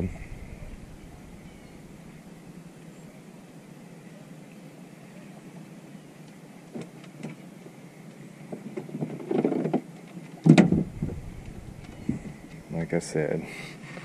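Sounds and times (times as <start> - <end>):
rustling and clatter: 8.5 - 12.8
loud thump: 10.5 - 12.7.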